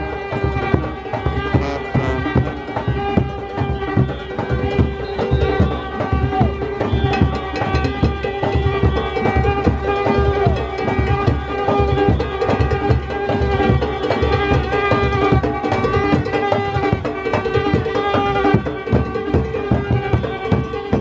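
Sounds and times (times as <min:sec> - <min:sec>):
brass holding sustained notes: 0:00.0 - 0:11.0
hand-beaten drums fast rhythm: 0:00.0 - 0:21.0.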